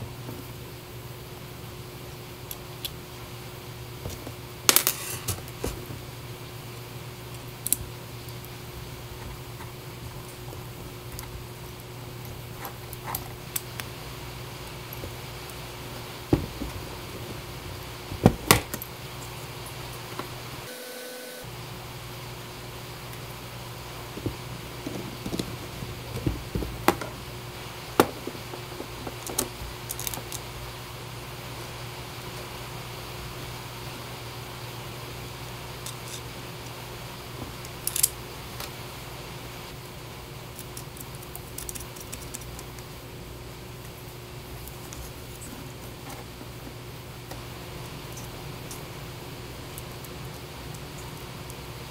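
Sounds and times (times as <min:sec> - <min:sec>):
steady low hum: 0:00.0 - 0:51.9
plastic parts clicking: 0:28.0 - 0:30.5, 0:37.6 - 0:38.2, 0:40.5 - 0:42.8.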